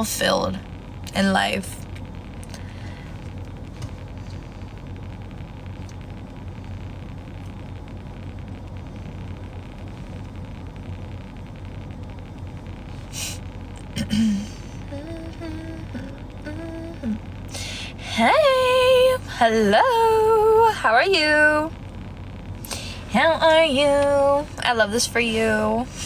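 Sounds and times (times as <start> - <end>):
car interior rumble: 0.0 - 26.0
short hiss: 12.9 - 13.5
person humming notes: 14.1 - 17.2.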